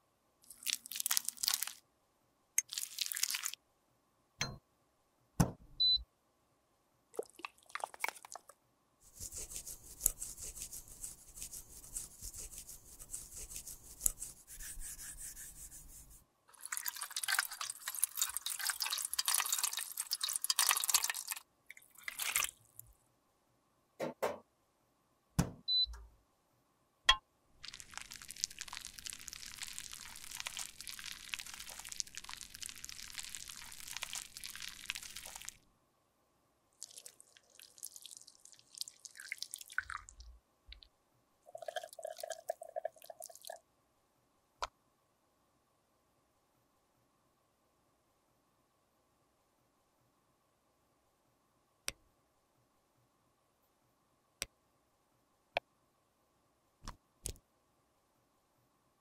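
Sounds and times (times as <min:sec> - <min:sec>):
crackly scratchy makeup tool noise: 0:09.1 - 0:22.6, 0:27.6 - 0:35.6.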